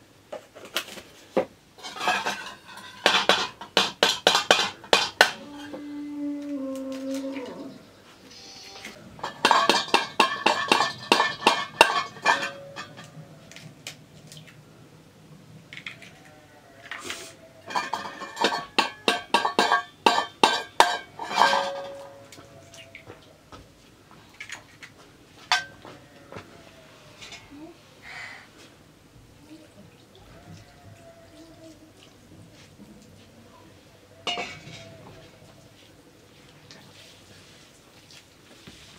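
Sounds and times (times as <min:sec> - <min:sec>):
metal utensil clinking steel bowl: 0:01.8 - 0:05.4, 0:09.2 - 0:13.2, 0:17.7 - 0:22.4, 0:34.3 - 0:35.0.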